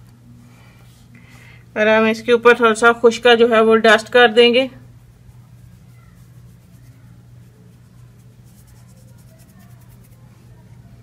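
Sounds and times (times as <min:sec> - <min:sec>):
steady low hum: 0:00.0 - 0:11.0
hand rubbing flour over dough: 0:02.0 - 0:11.0.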